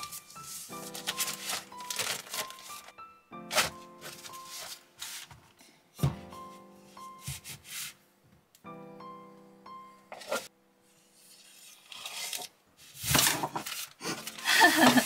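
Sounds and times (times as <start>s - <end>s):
soft piano music: 0.0s - 11.1s.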